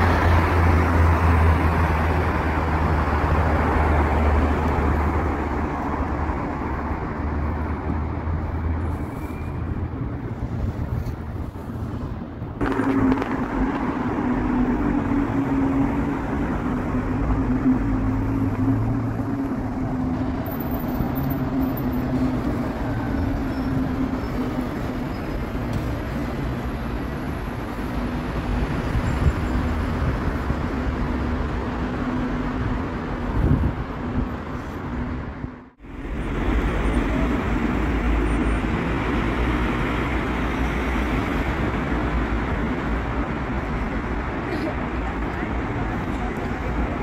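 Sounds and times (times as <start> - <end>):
cars driving by: 0.0 - 47.0.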